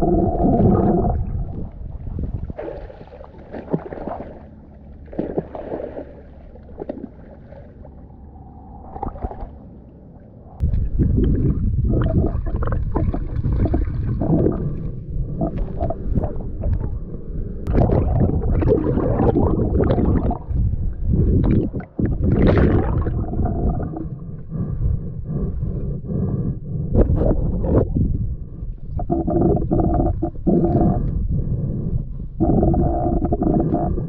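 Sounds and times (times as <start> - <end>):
muffled underwater rumbling: 0.0 - 34.0
water swishing surges: 2.0 - 14.8.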